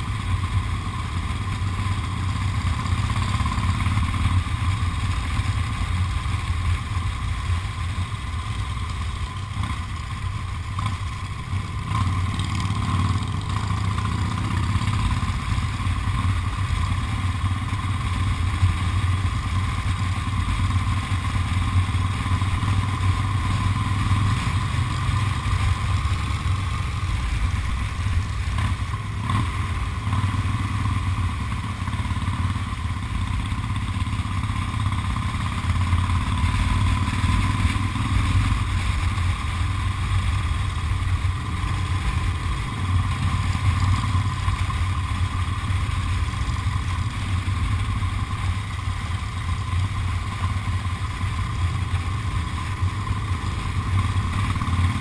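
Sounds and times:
motorcycle engine rumble: 0.0 - 55.0
road noise: 0.0 - 55.0.

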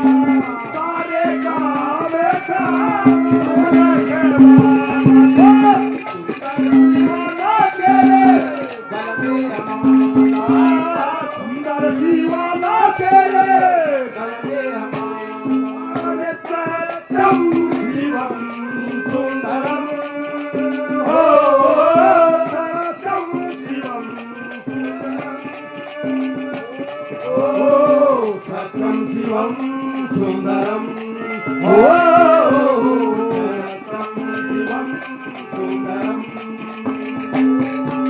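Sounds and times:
folk melody with gliding notes: 0.0 - 38.0
hand drum strokes: 0.0 - 38.0
jingling percussion: 0.0 - 38.0
held drone note: 23.3 - 38.0.

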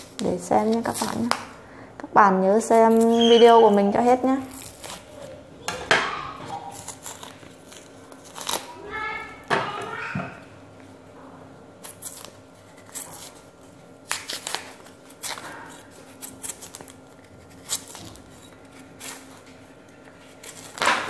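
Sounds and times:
knife scraping root skin: 4.5 - 5.4, 6.6 - 8.8, 11.8 - 21.0.

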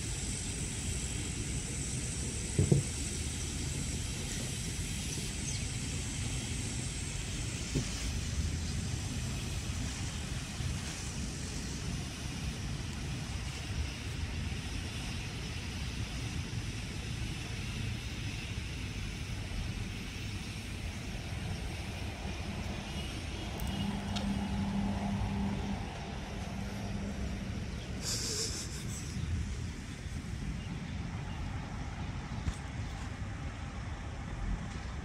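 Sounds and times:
smoke stick hissing: 0.0 - 30.7
traffic: 0.0 - 35.0
low engine hum: 19.0 - 35.0.

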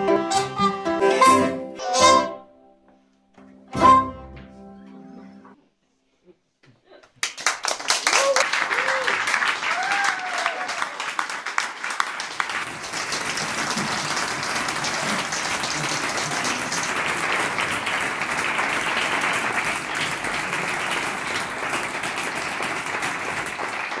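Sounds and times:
audience applauding: 7.1 - 24.0.

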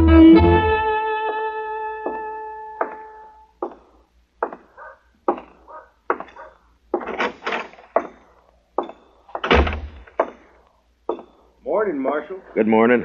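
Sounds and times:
boot footsteps on wooden floor: 2.0 - 3.0
heavy thump: 8.8 - 10.5.

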